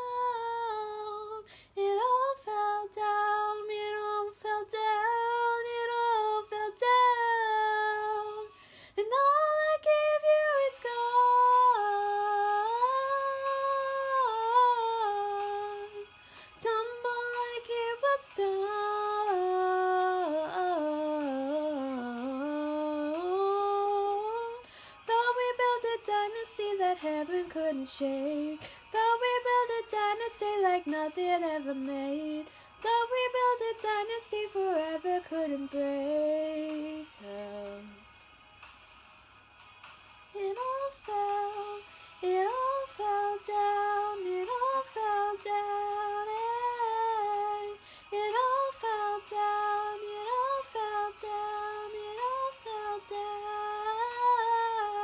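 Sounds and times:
woman singing unaccompanied: 0.0 - 38.1, 40.3 - 55.0
short breaths: 1.4 - 1.8, 8.5 - 9.0, 16.2 - 16.6, 24.6 - 25.0, 28.6 - 28.9, 47.8 - 48.1.

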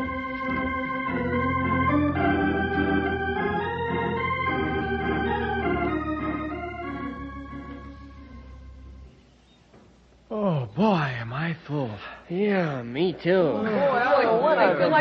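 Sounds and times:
organ chords: 0.0 - 9.7.

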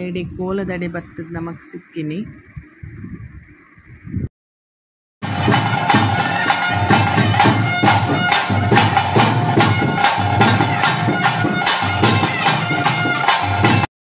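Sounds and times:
drums beating fast: 5.2 - 13.9
reedy wind instrument drone: 5.3 - 13.9.

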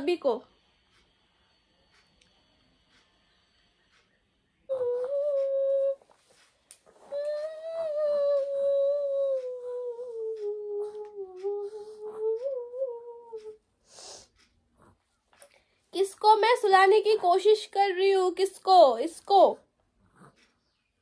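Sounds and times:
woman humming a lullaby: 4.7 - 14.1.

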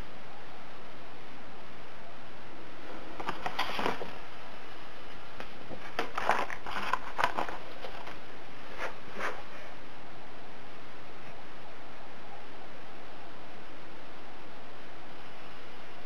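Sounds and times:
steady background hiss: 0.0 - 16.0
paper rustling and crackling: 3.2 - 4.3, 5.4 - 9.4.

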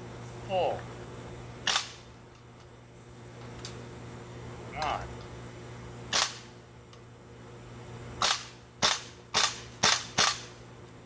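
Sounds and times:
airsoft rifle shots: 1.6 - 2.0, 6.1 - 6.5, 8.2 - 10.5.

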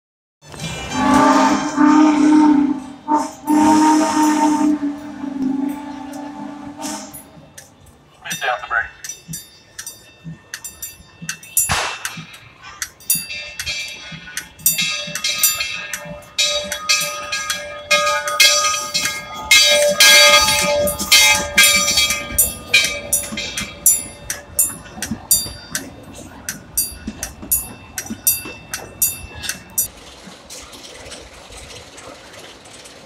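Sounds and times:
locomotive bell ringing: 0.4 - 30.0.

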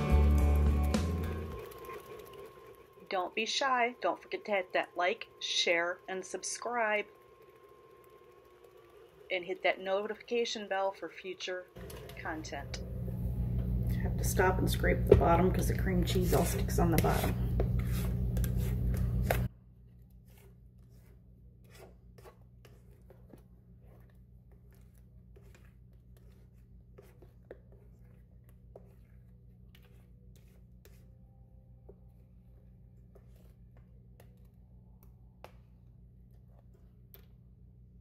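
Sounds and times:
spatula scraping metal bowl: 14.4 - 31.2, 31.9 - 34.5.

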